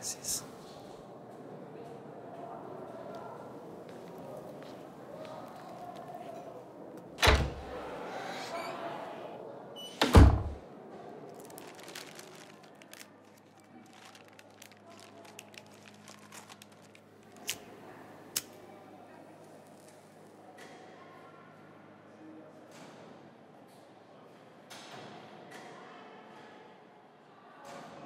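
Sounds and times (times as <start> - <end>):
crinkly wrapper crackling: 11.3 - 17.8.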